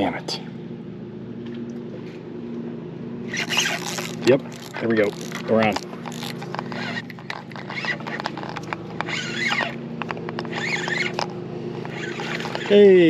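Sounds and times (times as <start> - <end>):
steady low hum: 0.0 - 13.0
high squeaky chirps: 3.3 - 9.9, 10.5 - 11.2, 11.8 - 12.8
fishing reel cranking: 3.3 - 13.0.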